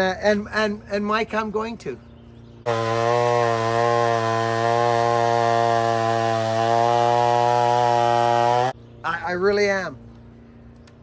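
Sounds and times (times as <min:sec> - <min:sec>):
chainsaw cutting a log: 0:02.7 - 0:08.8.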